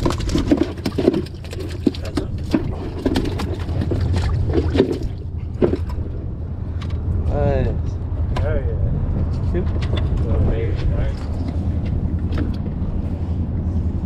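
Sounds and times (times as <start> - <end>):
knocks and thumps in metal boat: 0.0 - 6.1
low rumble: 0.0 - 14.0.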